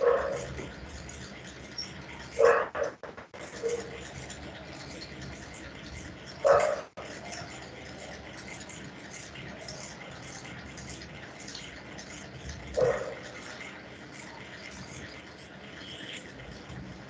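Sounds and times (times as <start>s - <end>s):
dog barking: 0.0s - 0.6s, 2.3s - 3.0s, 3.6s - 4.0s, 6.4s - 6.9s, 12.8s - 13.2s.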